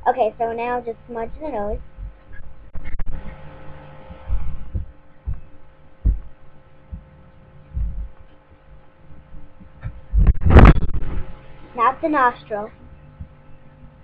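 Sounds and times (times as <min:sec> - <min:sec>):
faint steady hum: 0:00.0 - 0:14.0
low muffled thumps: 0:01.3 - 0:11.6.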